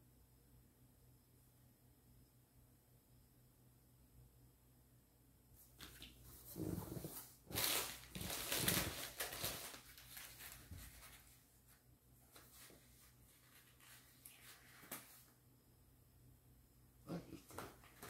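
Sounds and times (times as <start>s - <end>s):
packaging rustling and crinkling: 5.8s - 11.4s.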